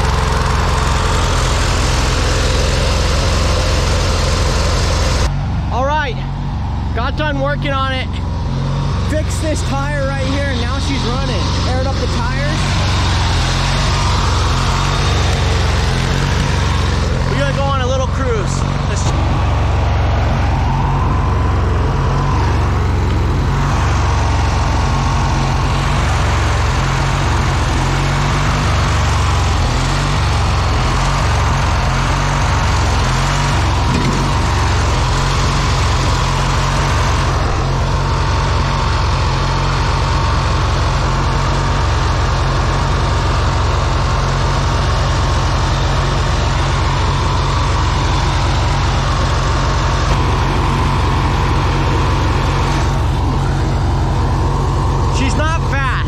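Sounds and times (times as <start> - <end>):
riding lawn mower engine running: 0.0 - 56.0.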